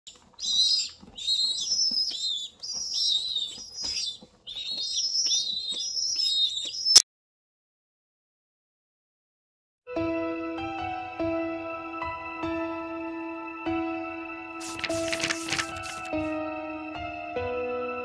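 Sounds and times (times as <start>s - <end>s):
pigeon squabs peeping: 0.1s - 7.0s, 14.6s - 16.2s.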